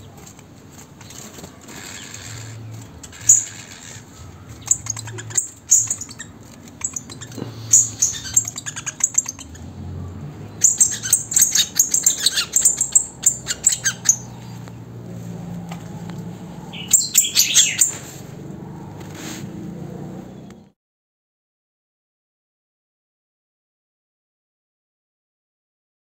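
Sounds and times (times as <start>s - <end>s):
birds chirping and singing: 0.0s - 19.1s.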